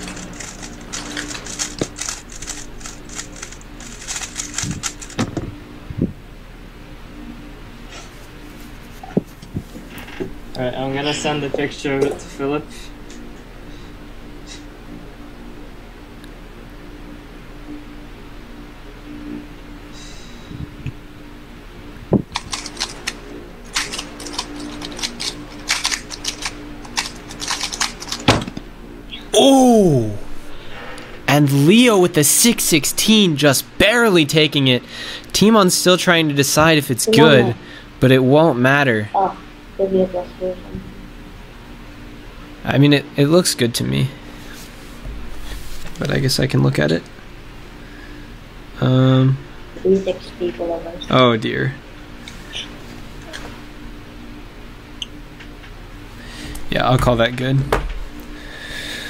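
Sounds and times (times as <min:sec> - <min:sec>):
puzzle cube plastic clicks: 0:00.0 - 0:05.2, 0:22.4 - 0:28.3.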